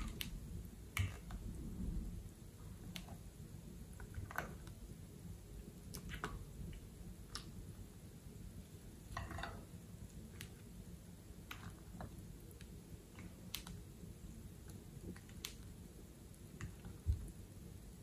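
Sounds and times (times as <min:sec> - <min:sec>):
slime squishing: 0:00.0 - 0:01.7.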